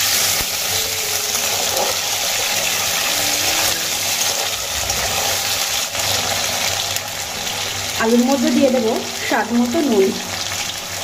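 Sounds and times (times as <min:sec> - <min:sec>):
potatoes sizzling in hot oil: 0:00.0 - 0:11.0
spatula stirring: 0:00.1 - 0:08.1.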